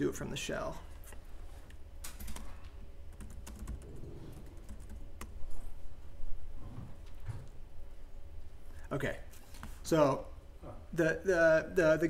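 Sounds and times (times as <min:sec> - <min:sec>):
laptop keyboard typing: 0:02.1 - 0:05.4.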